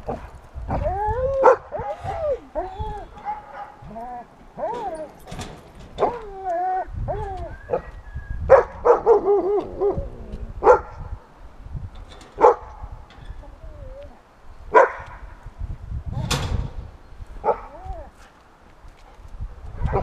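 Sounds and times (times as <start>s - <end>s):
dog whining: 0.7s - 5.3s, 6.0s - 8.0s
dog barking: 3.2s - 3.8s, 8.5s - 9.5s, 10.6s - 11.1s, 12.4s - 12.7s, 14.7s - 15.2s, 17.4s - 17.8s.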